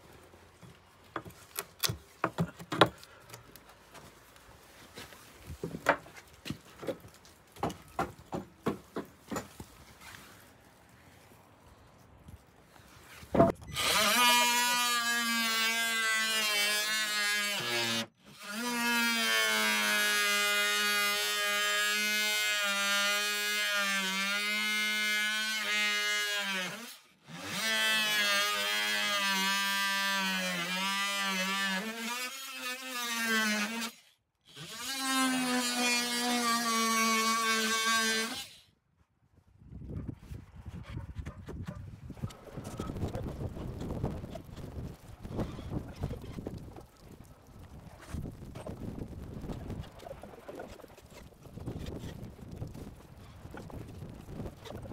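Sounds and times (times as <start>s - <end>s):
oscillating multi-tool cutting wood: 13.6s - 38.8s, 49.8s - 53.9s.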